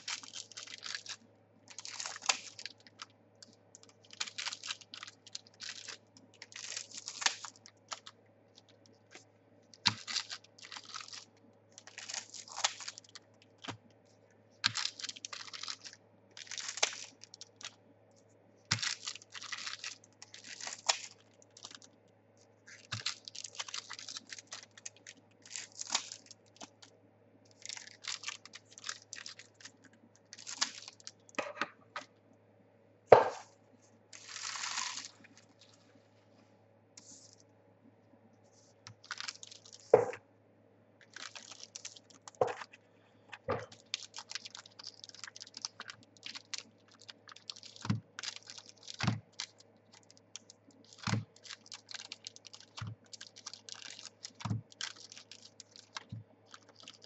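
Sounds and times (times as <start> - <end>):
foil packs crinkling and tearing: 0.0 - 9.2, 9.8 - 13.8, 14.6 - 17.8, 18.7 - 22.0, 22.7 - 26.9, 27.5 - 31.2, 34.2 - 35.8, 38.9 - 40.0, 41.0 - 42.5, 43.6 - 57.0.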